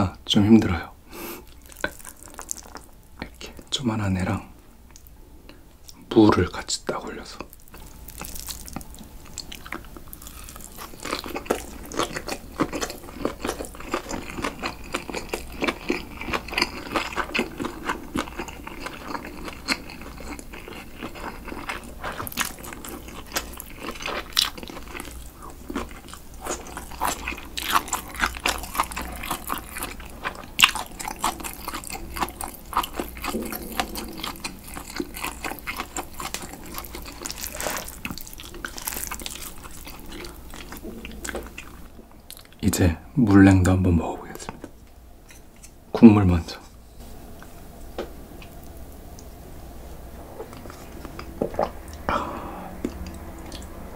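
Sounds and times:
close-miked chewing: 1.4 - 3.6, 7.4 - 42.8, 50.4 - 53.8.

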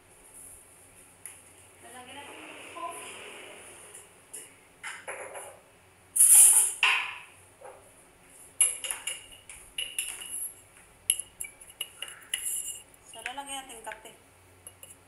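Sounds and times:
metal spoon clinking on container: 8.6 - 13.4, 14.6 - 15.0
scoop scraping coffee powder: 11.7 - 12.8.

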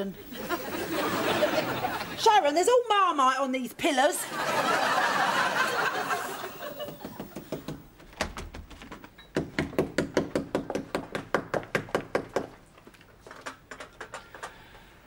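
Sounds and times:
studio audience laughing: 0.2 - 2.2, 4.2 - 7.4.

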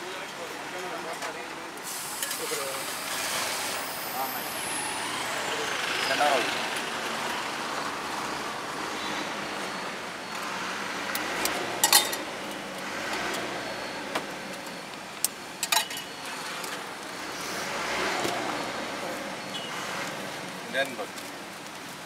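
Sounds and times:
street noise: 0.0 - 22.0
metal clinks of cooking utensils: 11.8 - 12.3, 15.6 - 16.2.

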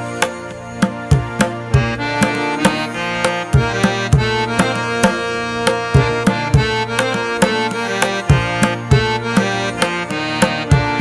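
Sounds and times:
steady percussive beat: 0.0 - 11.0.

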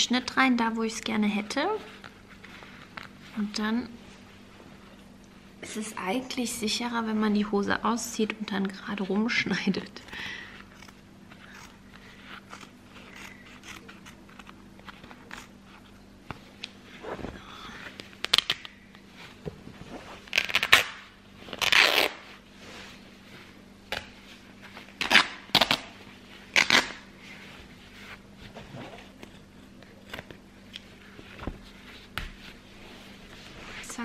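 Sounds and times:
denim ripping: 19.9 - 22.4, 24.9 - 27.1
threads crackling as they tear: 20.1 - 22.3, 25.0 - 27.0.

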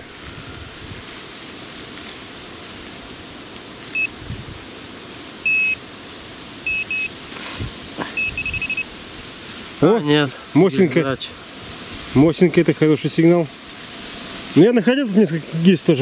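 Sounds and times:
metal detector probe beeping: 3.9 - 4.2, 5.4 - 5.8, 6.7 - 7.2, 8.2 - 8.9.

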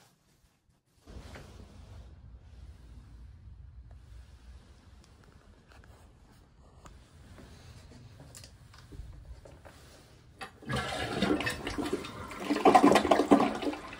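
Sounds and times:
water swirling into toilet bowl: 10.4 - 13.9.

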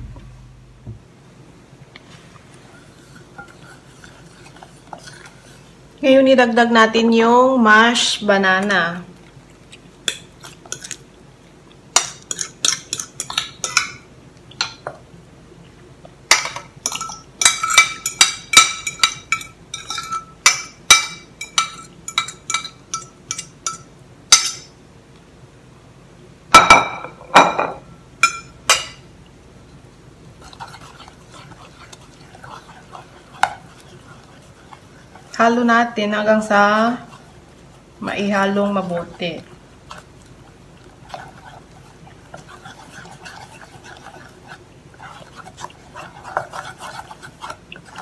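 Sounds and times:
louder knocks: 0.0 - 1.1
soft stirring in pan: 0.8 - 25.4, 26.6 - 48.0.

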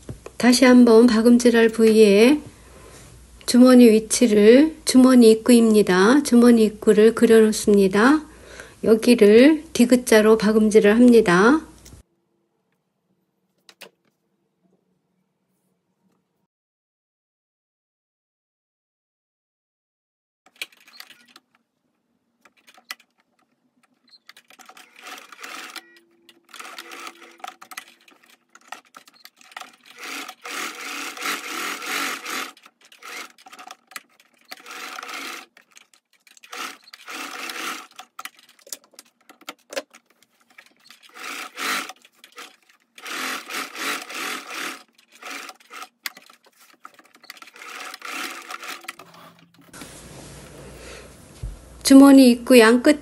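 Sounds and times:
sewing machine stitching: 20.5 - 21.6, 22.4 - 49.8.

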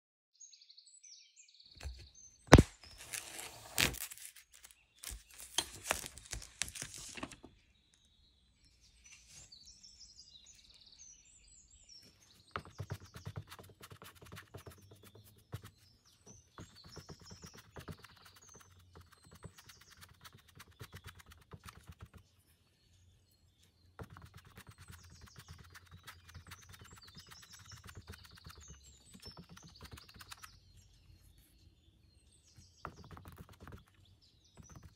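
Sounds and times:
birds chirping: 7.3 - 34.9
sponge dabbing on canvas: 12.3 - 22.2, 24.0 - 30.6, 32.8 - 34.0, 34.6 - 34.9.

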